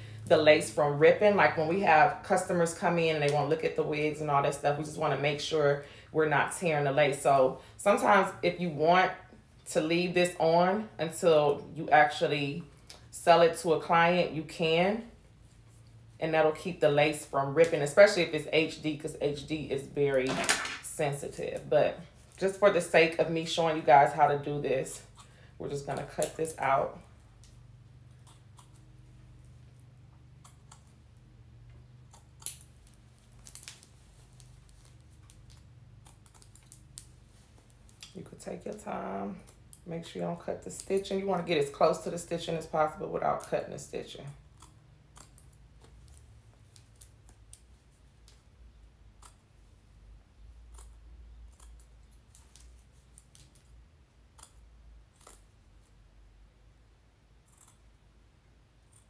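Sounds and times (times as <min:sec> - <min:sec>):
scissors snipping: 0:25.8 - 0:26.6, 0:30.4 - 0:31.0, 0:50.7 - 0:53.7.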